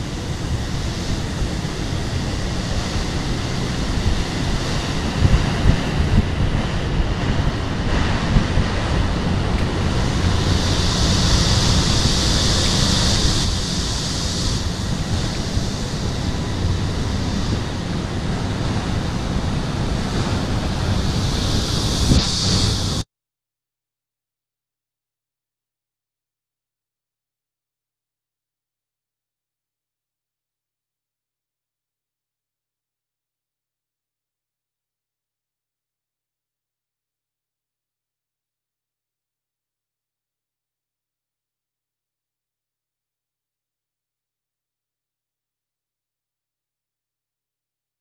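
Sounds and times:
high hiss: 0.0s - 23.0s
wind buffeting microphone: 0.0s - 23.0s.

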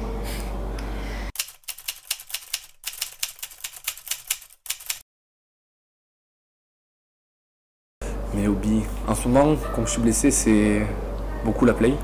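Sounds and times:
low room hum: 0.0s - 1.3s, 8.0s - 12.0s
typewriter key clicks: 1.4s - 5.0s.

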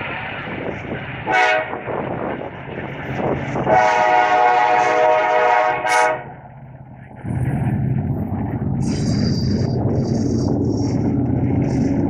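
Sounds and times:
locomotive air horn: 1.3s - 1.8s, 3.7s - 6.3s
freight cars rumbling past: 6.1s - 12.0s.

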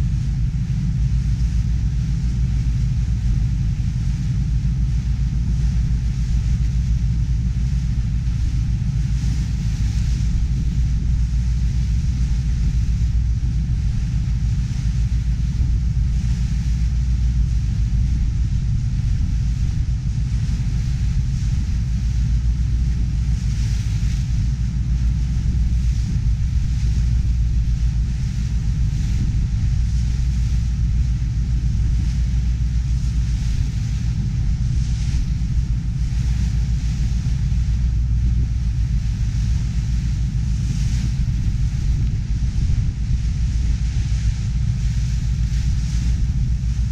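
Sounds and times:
ferry engine rumbling: 0.0s - 46.9s.

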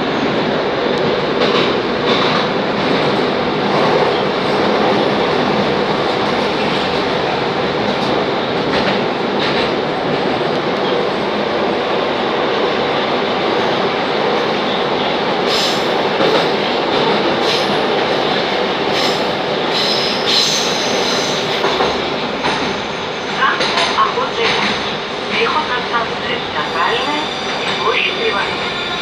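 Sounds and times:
train wheels rumbling on rail: 0.0s - 29.0s.

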